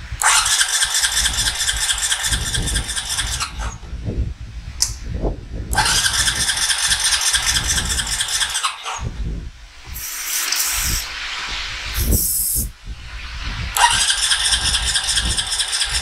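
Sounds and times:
engine cranking on starter: 5.7 - 8.8, 13.8 - 16.0.

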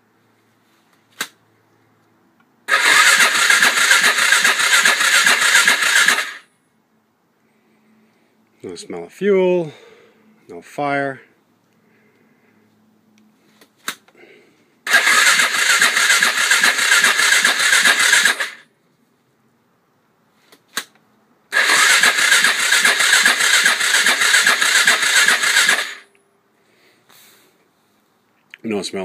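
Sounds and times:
electric starter cranking engine: 2.7 - 6.5, 14.9 - 18.6, 21.5 - 26.1.

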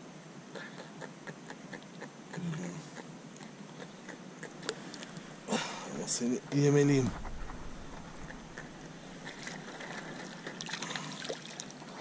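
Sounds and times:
water lapping around a kayak: 7.1 - 12.0
water splashing and dripping: 9.2 - 12.0.

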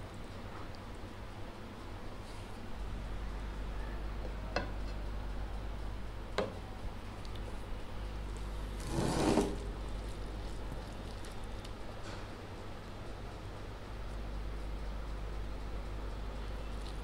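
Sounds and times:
low steady hum: 0.0 - 17.0
fingers mixing rice rustle: 8.7 - 12.0.

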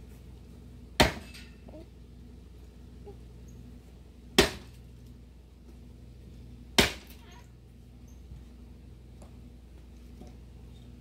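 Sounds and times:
axe chopping log: 1.0 - 1.3, 4.4 - 4.8, 6.8 - 7.2.

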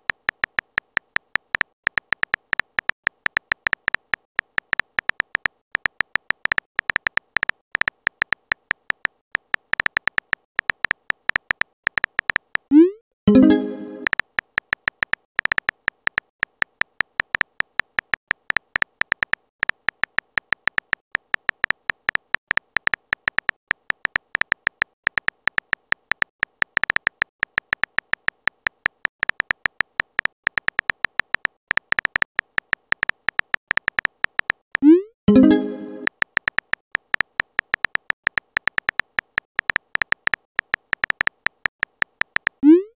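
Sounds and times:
keyboard typing beeps: 0.0 - 42.9
message sent chime: 12.8 - 14.1, 35.3 - 36.1.

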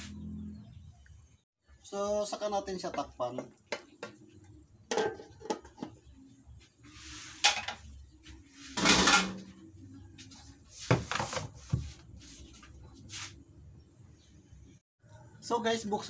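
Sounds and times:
pots and pans clattering: 4.9 - 6.0, 8.8 - 9.5.

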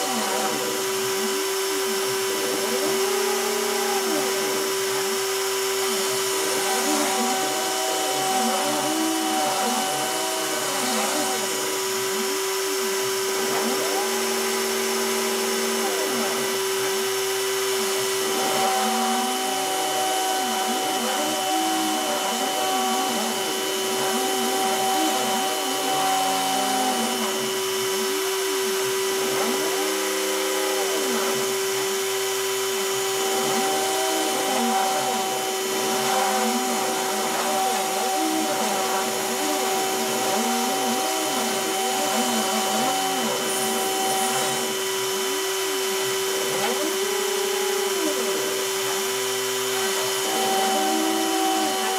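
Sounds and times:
spindle motor whine: 0.0 - 51.9
stepper motors gliding tones: 0.0 - 51.9.

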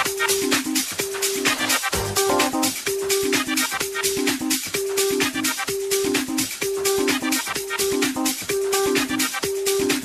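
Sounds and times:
repeating synth riff: 1.6 - 2.8
deep kick drum: 1.9 - 2.6.

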